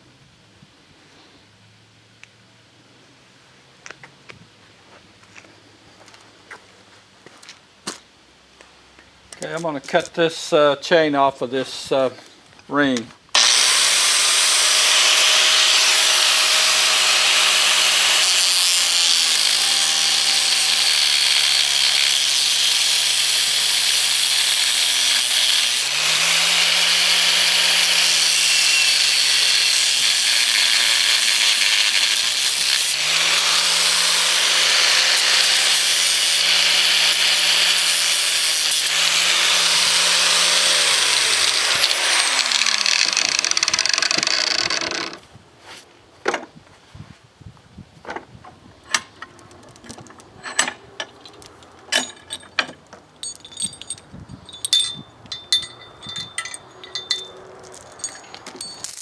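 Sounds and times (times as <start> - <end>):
angle grinder cutting steel chain: 13.4 - 45.2, 50.2 - 59.0.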